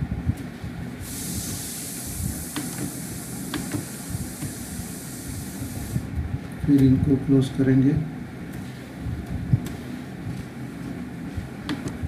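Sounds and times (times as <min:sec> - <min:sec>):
steady hiss: 0:01.0 - 0:06.1.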